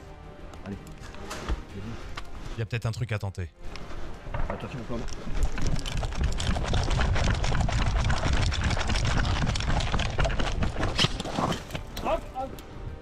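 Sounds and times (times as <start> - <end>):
wind on microphone: 5.4 - 11.0.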